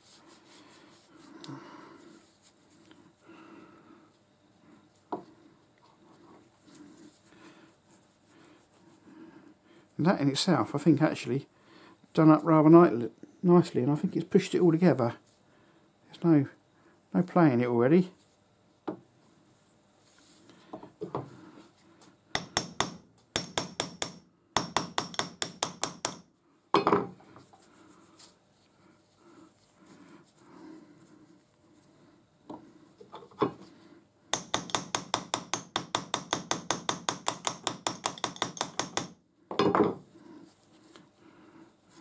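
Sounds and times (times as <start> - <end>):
small hammer tapping on steel: 22.4 - 27.0, 34.3 - 39.2.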